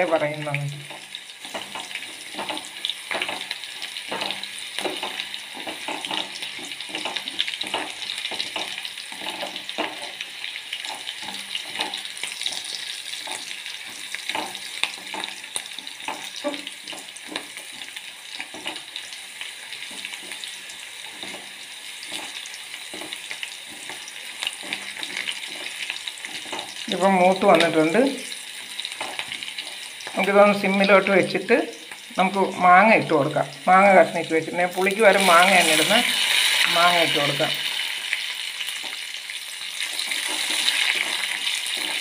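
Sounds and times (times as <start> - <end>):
wooden spatula scraping metal pot: 0.0 - 31.5, 39.9 - 42.0
garlic sizzling in hot oil: 0.0 - 42.0.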